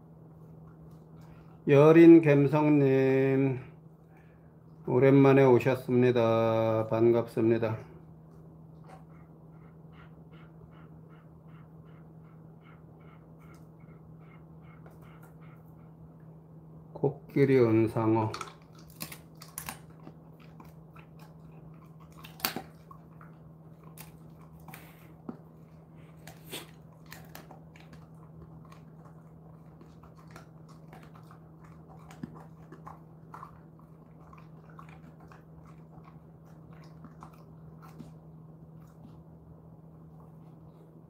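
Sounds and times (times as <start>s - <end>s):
steady low hum: 0.0s - 41.0s
dog chewing and crunching: 4.2s - 10.1s, 17.0s - 40.8s.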